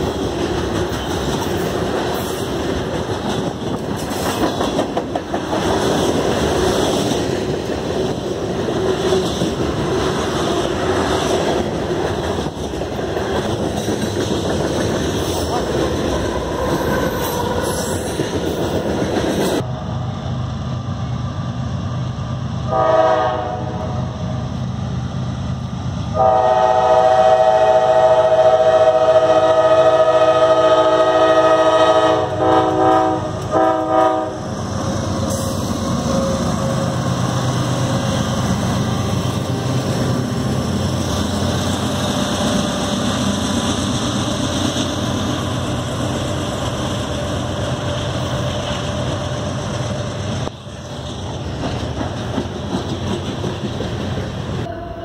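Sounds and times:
train wheels rattling on rails: 0:00.0 - 0:22.8, 0:24.2 - 0:54.7
locomotive horn blasts: 0:22.7 - 0:24.0, 0:26.2 - 0:34.5.

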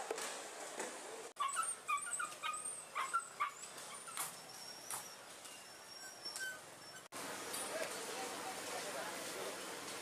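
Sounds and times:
dogs yelping and whining: 0:01.4 - 0:07.1.

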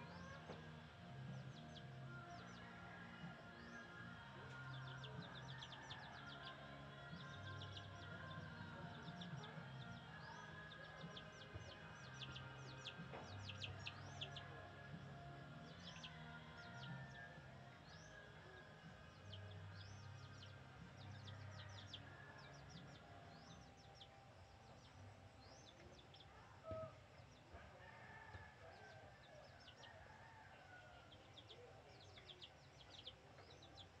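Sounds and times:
rooster crowing: 0:27.5 - 0:31.4.

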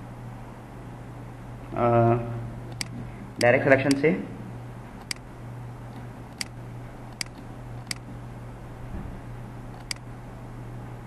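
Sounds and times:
steady low hum: 0:00.0 - 0:11.0
computer mouse clicking: 0:02.7 - 0:03.0, 0:05.0 - 0:05.2, 0:07.1 - 0:08.0, 0:09.7 - 0:10.0.

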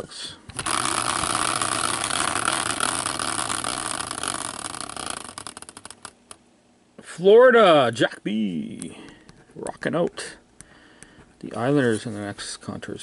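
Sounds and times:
caster wheel whirring: 0:00.5 - 0:06.4.

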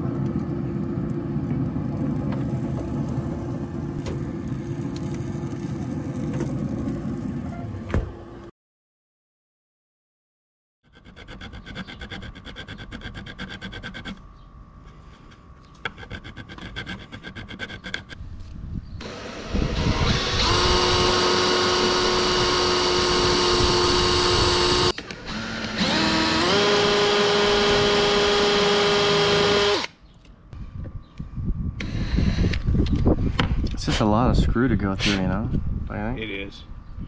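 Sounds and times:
cordless drill whining: 0:19.0 - 0:29.9.

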